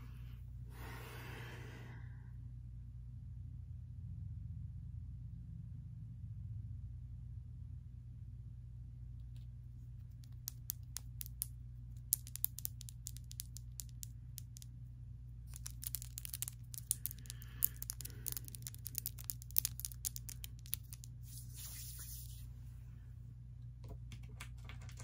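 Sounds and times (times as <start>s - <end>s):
fingernails clicking together: 15.5s - 21.1s
brief rubbing hiss: 21.2s - 22.5s.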